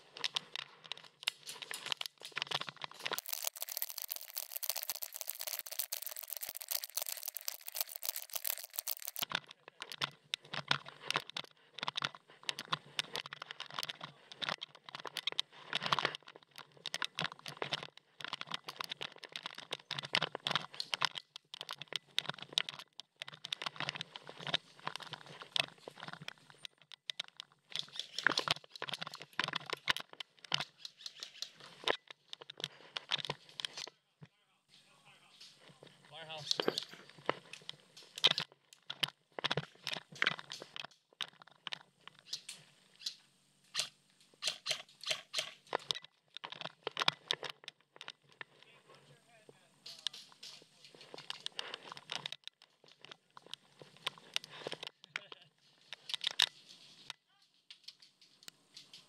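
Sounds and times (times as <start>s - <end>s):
gear rubbing: 0.1s - 33.8s
footsteps on dry dirt and grass: 2.9s - 9.2s.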